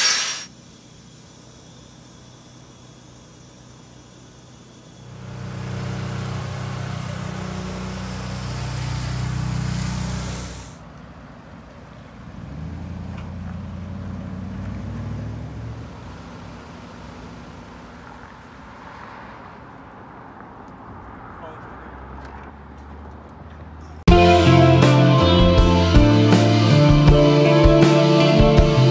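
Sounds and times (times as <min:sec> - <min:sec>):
strong hiss: 0:00.0 - 0:05.6, 0:06.4 - 0:10.8
motor humming: 0:00.0 - 0:10.8
lower motor hum: 0:00.6 - 0:10.8.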